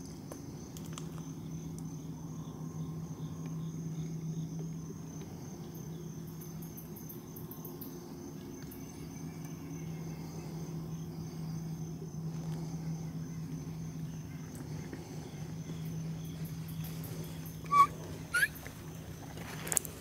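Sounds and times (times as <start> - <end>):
insects trilling: 0.0 - 20.0
low steady hum: 0.0 - 20.0
high pulsed chirps: 17.6 - 18.6.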